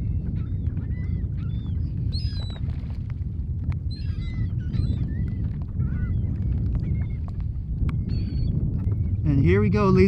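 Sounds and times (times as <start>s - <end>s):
steady low rumble: 0.0s - 10.0s
gulls squawking: 3.9s - 10.0s.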